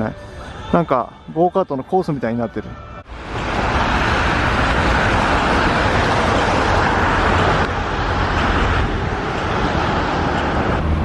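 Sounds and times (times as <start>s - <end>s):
tram rolling: 3.0s - 11.0s
tyres hissing on wet road: 3.1s - 11.0s.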